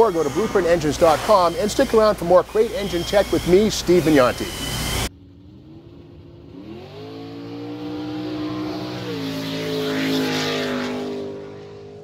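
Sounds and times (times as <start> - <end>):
car engine at high revs: 4.9 - 12.0.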